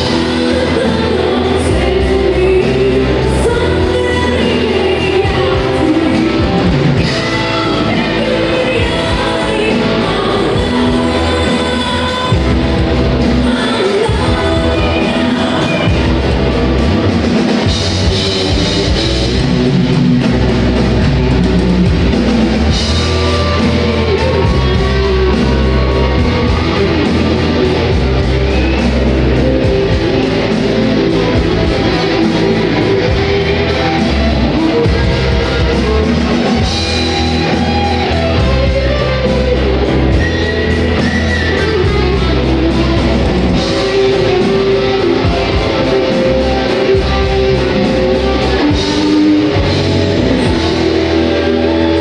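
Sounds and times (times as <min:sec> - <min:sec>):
drum kit beat: 0:00.0 - 0:52.0
electric guitars: 0:00.0 - 0:52.0
heavy bass: 0:00.0 - 0:52.0.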